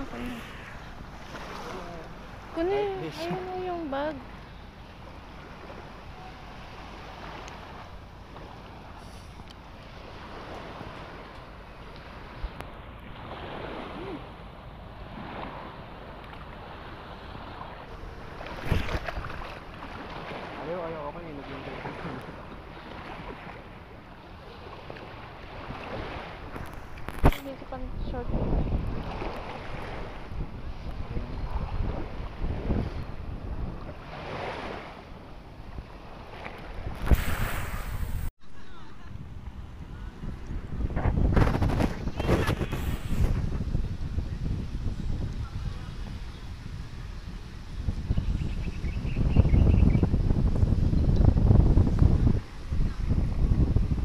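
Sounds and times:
sea water washing at shoreline: 0.0s - 54.0s
wind rushing over microphone: 11.9s - 21.0s, 25.5s - 54.0s
rush of hiss: 37.0s - 38.3s.

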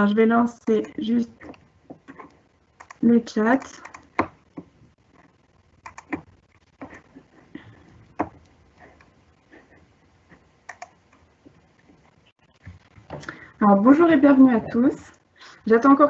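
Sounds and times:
keyboard and mouse clicks: 0.7s - 7.0s, 10.6s - 11.3s.

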